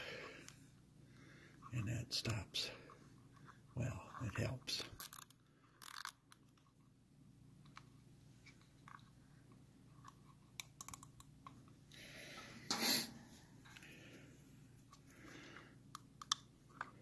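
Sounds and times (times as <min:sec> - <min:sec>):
small clicks and rustling: 0:07.6 - 0:11.8.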